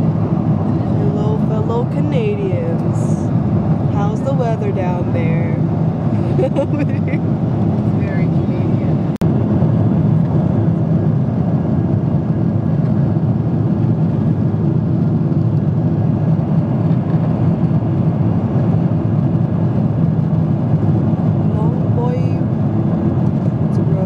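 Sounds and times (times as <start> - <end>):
airliner cabin engine hum: 0.0 - 24.0.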